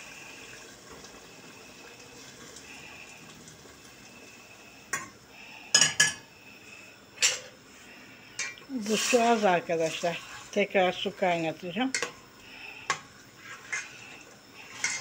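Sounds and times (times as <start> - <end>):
faint steady hiss: 0.0 - 15.0
metal spoon stirring in pot: 8.4 - 10.6, 11.4 - 12.2, 12.9 - 14.0, 14.6 - 15.0.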